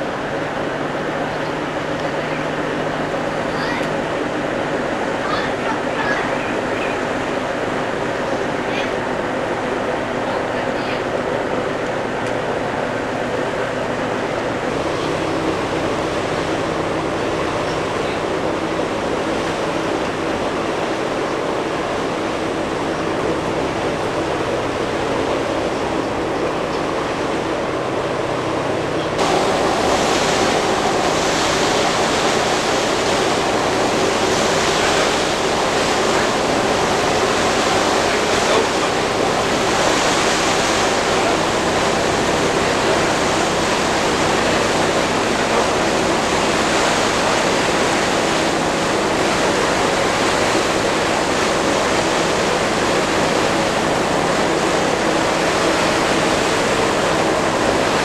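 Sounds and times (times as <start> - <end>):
water on the bay: 0.0 - 58.0
wind rushing: 29.2 - 38.0.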